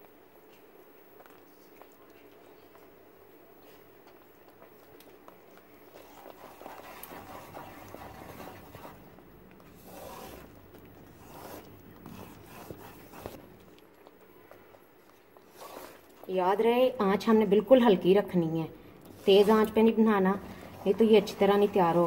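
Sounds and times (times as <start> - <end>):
wooden spatula scraping pan: 9.8 - 10.5, 19.1 - 22.0.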